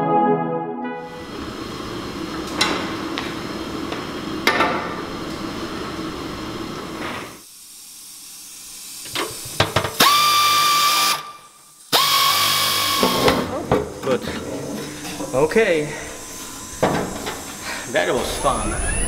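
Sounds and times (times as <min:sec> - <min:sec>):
pneumatic wrench whining: 0:09.0 - 0:13.5
steady hum: 0:14.6 - 0:19.0.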